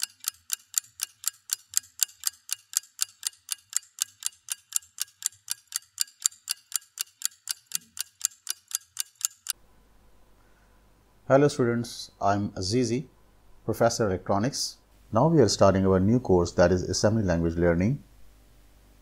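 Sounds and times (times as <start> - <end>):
steady ticking: 0.0 - 9.6.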